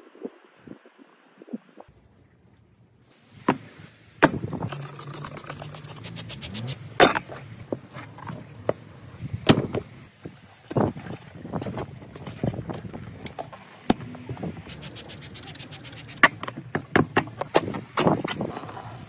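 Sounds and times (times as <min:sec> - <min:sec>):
rubber tyre rubbing and squeaking: 0:04.6 - 0:08.9, 0:09.8 - 0:19.0.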